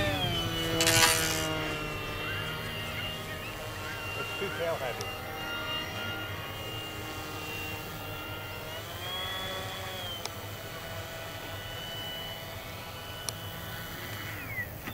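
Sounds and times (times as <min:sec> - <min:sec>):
electric motor whining: 0:00.0 - 0:14.9.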